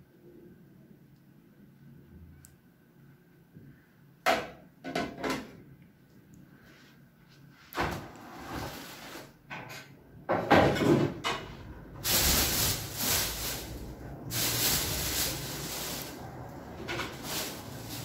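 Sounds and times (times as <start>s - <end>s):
rustling and rubbing handling noise: 6.6s - 7.7s, 11.4s - 18.0s.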